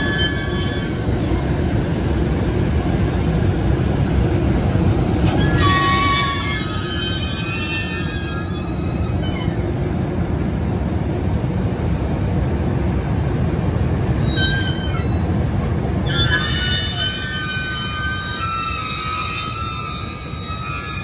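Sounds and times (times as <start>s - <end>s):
wheels squealing on rails: 0.0s - 9.9s, 14.1s - 21.0s
locomotive wheels rumbling on rail: 0.0s - 21.0s.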